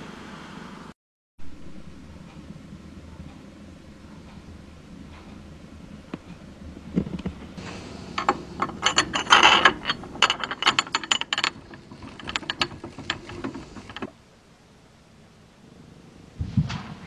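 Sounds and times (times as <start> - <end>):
mechanical clicks and rattles: 7.0 - 14.1.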